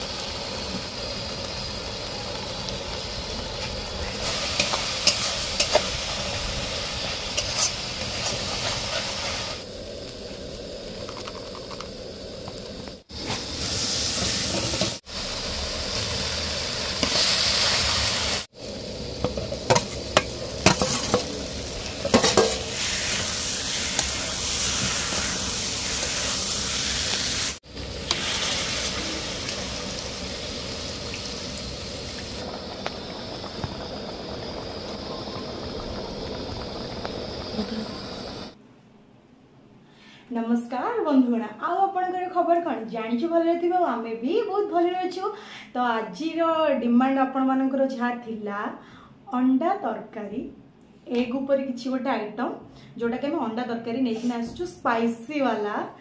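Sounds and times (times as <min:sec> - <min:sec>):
food sizzling in a pan: 0:00.0 - 0:38.6.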